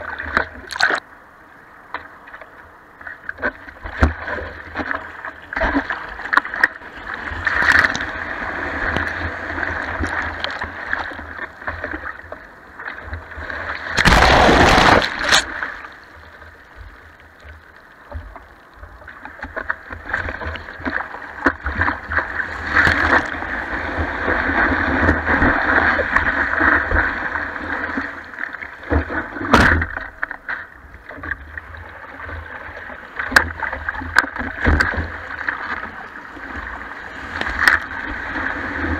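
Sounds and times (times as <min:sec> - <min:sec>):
rush of water over camera: 0:00.0 - 0:01.1, 0:02.2 - 0:38.9
sharp splash: 0:13.9 - 0:15.8.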